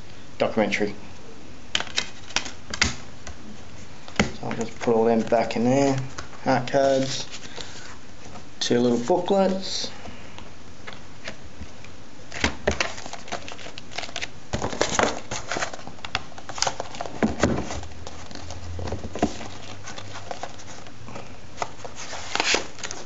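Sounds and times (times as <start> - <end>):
packaging rustling: 12.3 - 23.0.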